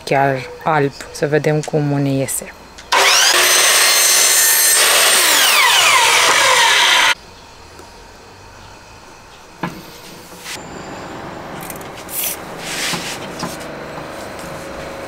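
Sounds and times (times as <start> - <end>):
mitre saw motor whine: 2.9 - 7.2, 10.6 - 15.0.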